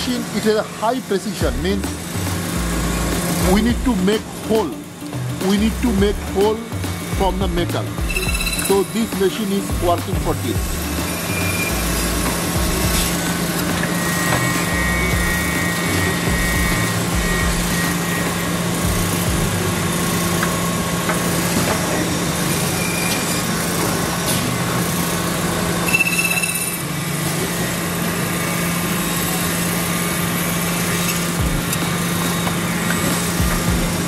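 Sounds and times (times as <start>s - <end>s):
cutting machine humming: 0.0s - 34.0s
factory machine noise: 0.0s - 34.0s
sharp machine squeal: 8.0s - 9.9s, 10.5s - 19.3s, 22.4s - 24.4s, 25.8s - 33.4s.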